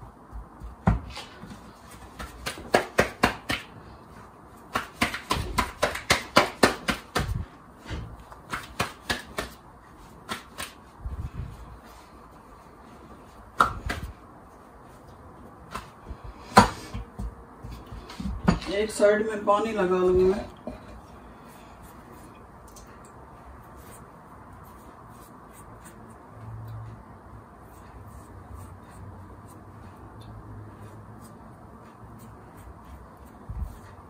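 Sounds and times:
hands slapping dough on wooden board: 0:00.2 - 0:03.9, 0:04.6 - 0:11.0, 0:13.4 - 0:14.2, 0:15.6 - 0:18.7.

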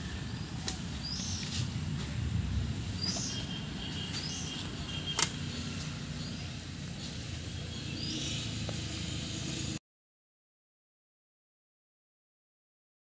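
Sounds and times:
low outdoor rumble: 0:00.0 - 0:09.8
bird chirps: 0:00.2 - 0:01.7, 0:03.0 - 0:08.6.

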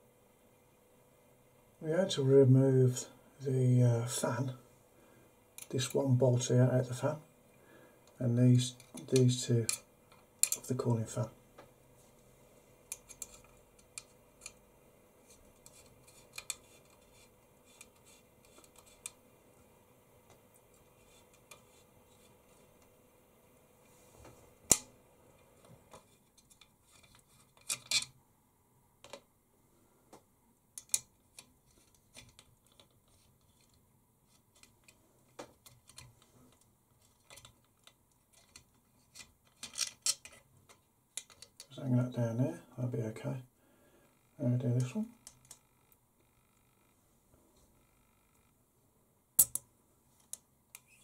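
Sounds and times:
faint steady hum: 0:00.0 - 0:51.0
small clicks of screws and parts: 0:08.8 - 0:10.7, 0:12.9 - 0:14.6, 0:15.6 - 0:19.2, 0:25.9 - 0:28.1, 0:29.0 - 0:29.3, 0:30.8 - 0:41.7, 0:45.2 - 0:45.7, 0:49.4 - 0:51.0.

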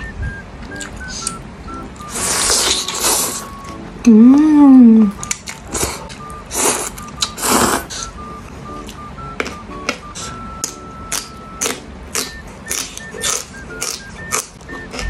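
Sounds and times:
light plucked background music: 0:00.0 - 0:15.0
noodles slurping: 0:02.0 - 0:03.6
person humming mmm: 0:02.1 - 0:05.2.

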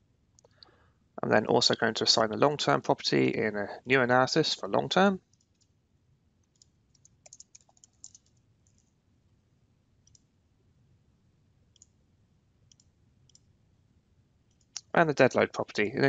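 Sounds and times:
faint keyboard typing: 0:05.2 - 0:05.8, 0:06.4 - 0:09.0, 0:10.0 - 0:10.3, 0:12.7 - 0:13.5, 0:14.5 - 0:15.9
mouse clicks: 0:06.4 - 0:08.8, 0:10.0 - 0:10.3, 0:12.7 - 0:13.5.

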